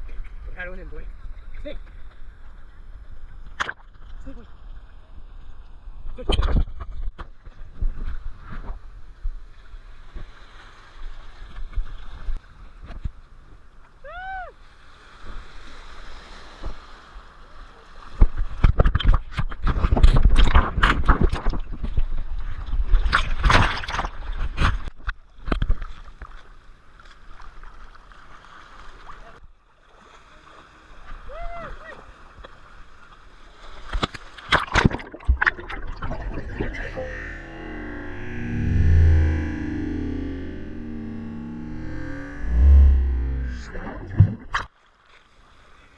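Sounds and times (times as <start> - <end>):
rising and falling call: 36.2 - 44.2.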